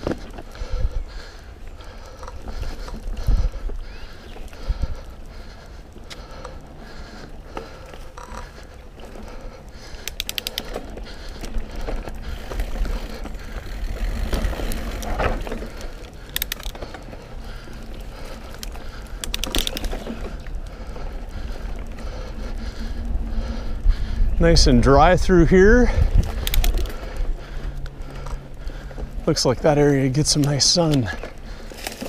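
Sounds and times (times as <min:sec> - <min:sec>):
bike tyres on dirt trail: 0:00.0 - 0:32.0
wind rumble on microphone: 0:02.3 - 0:05.4, 0:19.8 - 0:27.6
rapid clicking: 0:04.4 - 0:23.0, 0:26.1 - 0:29.0.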